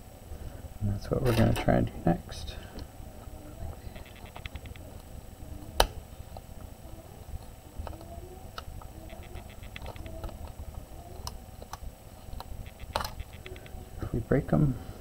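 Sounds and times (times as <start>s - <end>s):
tool clicking on small connectors: 7.8s - 10.6s.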